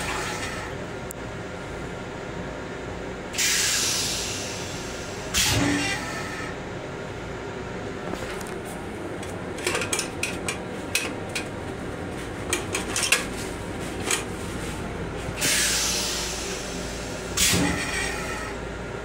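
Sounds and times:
steady low rumble: 0:06.5 - 0:17.4
toilet paper dispenser rattling: 0:09.6 - 0:11.6, 0:12.4 - 0:13.4.

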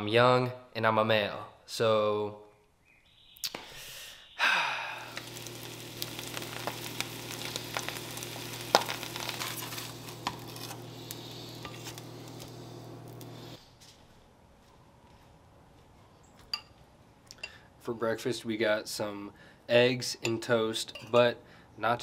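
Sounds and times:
steady low hum: 0:04.4 - 0:13.6
eggs sizzling in oil: 0:05.0 - 0:13.6.

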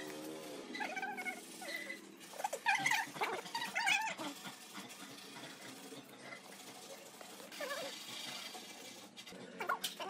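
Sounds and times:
high-pitched wavering animal calls: 0:00.7 - 0:04.3.

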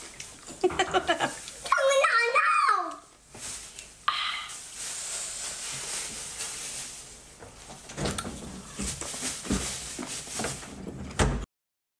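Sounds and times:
soft hiss: 0:02.8 - 0:07.9.

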